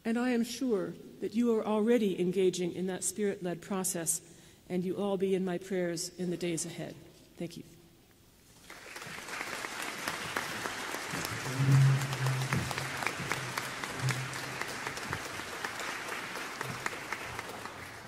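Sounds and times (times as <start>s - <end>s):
audience applauding: 8.6s - 18.0s.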